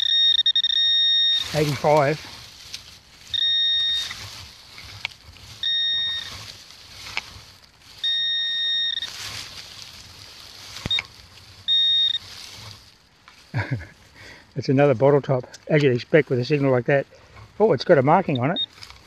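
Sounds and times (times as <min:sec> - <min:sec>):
metal detector high beeps: 0:00.0 - 0:02.4, 0:03.2 - 0:09.9, 0:10.6 - 0:12.8, 0:18.3 - 0:18.8
soft rustling: 0:00.0 - 0:19.0.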